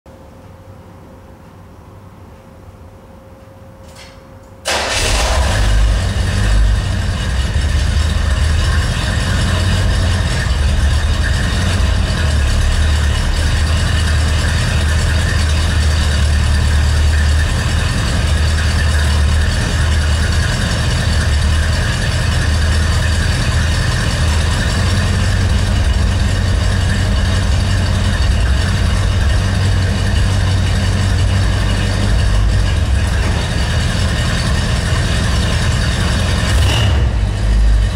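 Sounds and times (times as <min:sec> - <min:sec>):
car engine idling: 0:04.7 - 0:37.9.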